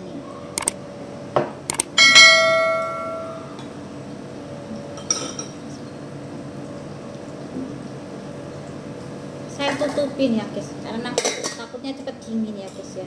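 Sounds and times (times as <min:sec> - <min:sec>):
tableware ringing tone: 0:02.0 - 0:03.6
tableware clinking: 0:02.0 - 0:03.8, 0:04.9 - 0:05.6.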